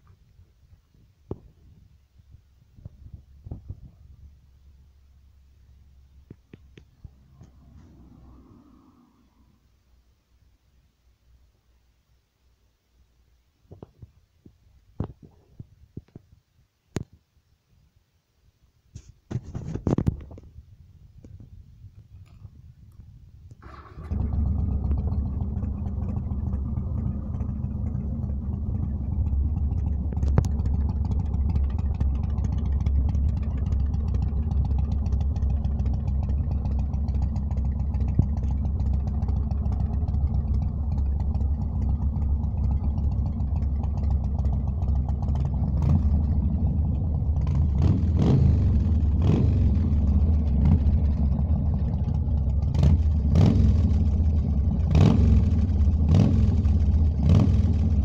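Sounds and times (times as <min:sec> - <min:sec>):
motorcycle engine idling: 0:22.4 - 0:58.0
engine revving: 0:23.6 - 0:43.5, 0:44.4 - 0:58.0.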